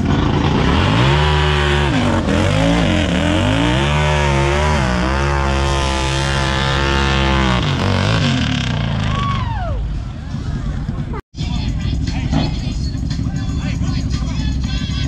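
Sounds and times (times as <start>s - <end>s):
off-road vehicle engine revving: 0.0s - 9.6s.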